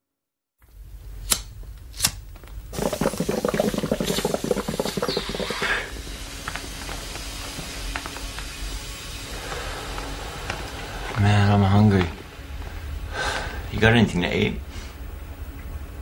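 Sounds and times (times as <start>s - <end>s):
water glugging from plastic bottle: 2.8s - 6.0s.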